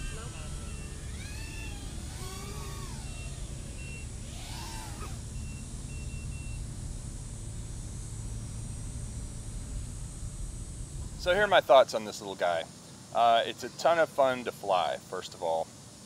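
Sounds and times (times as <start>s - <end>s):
drone motors whining: 0.0s - 11.8s
low rumble: 0.0s - 11.9s.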